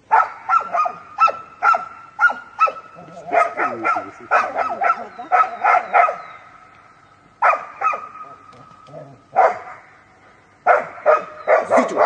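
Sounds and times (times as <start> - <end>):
large dog barking rapidly: 0.1 - 6.2, 7.4 - 8.3, 9.3 - 9.8, 10.6 - 12.0.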